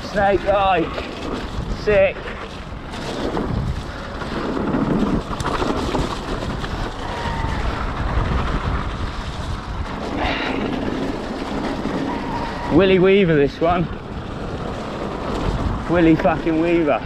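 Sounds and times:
tyres rumbling on dirt: 0.0 - 17.0
wind buffeting microphone: 0.0 - 17.0.

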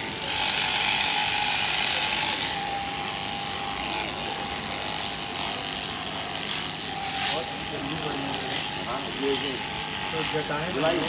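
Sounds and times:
electric shears humming and rattling: 0.0 - 11.0.

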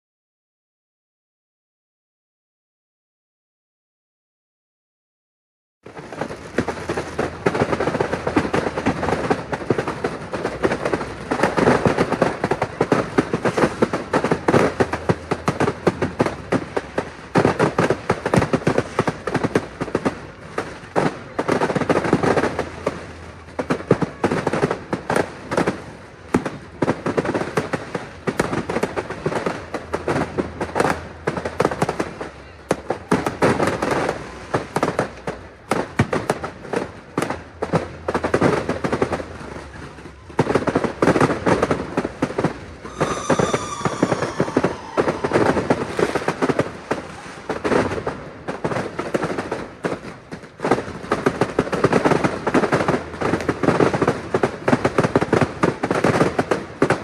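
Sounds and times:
fireworks bangs and crackling: 5.8 - 57.0.

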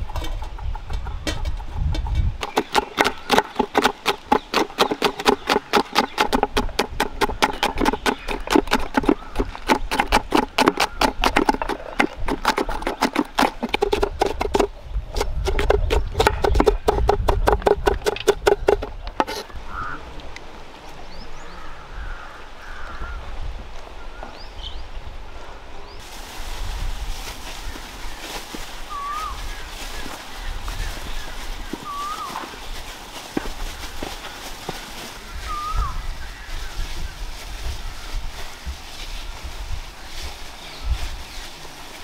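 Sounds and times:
outdoor ambience: 0.0 - 42.0
knife chopping on wooden board: 12.4 - 19.4.

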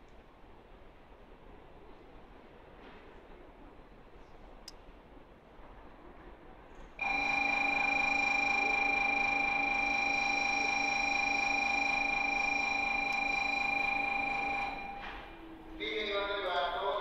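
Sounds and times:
electronic warning buzzer: 7.0 - 15.3.

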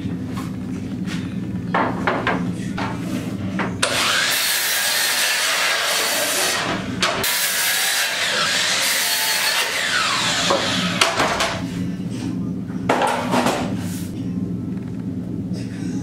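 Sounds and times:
miter saw cutting wood: 3.8 - 11.6.

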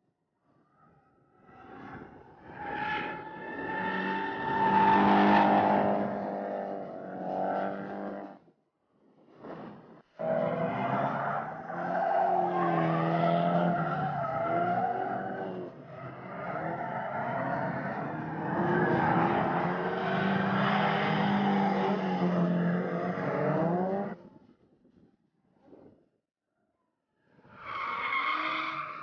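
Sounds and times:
car engine revving: 3.6 - 8.4, 10.2 - 24.2.

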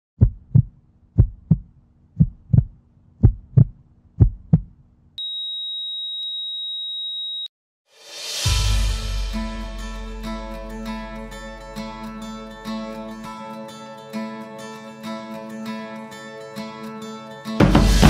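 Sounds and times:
heartbeat thumps: 0.2 - 4.8
flatline beep: 5.2 - 7.5
music: 7.9 - 18.0.

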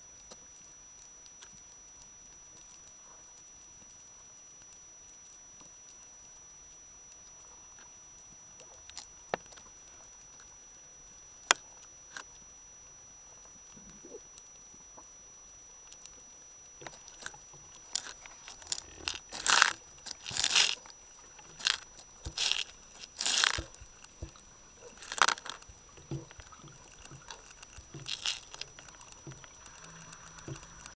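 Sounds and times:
faint high whine: 0.0 - 31.0
underwater crackling hiss: 13.6 - 31.0.

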